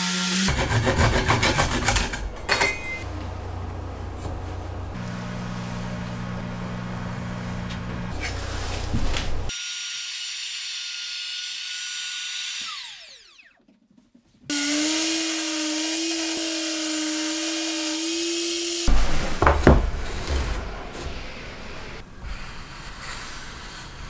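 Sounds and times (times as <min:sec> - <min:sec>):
low hum: 0:02.0 - 0:09.5
circular saw running: 0:09.5 - 0:13.6, 0:14.5 - 0:19.5
trim router whining: 0:09.5 - 0:13.6, 0:14.5 - 0:19.5.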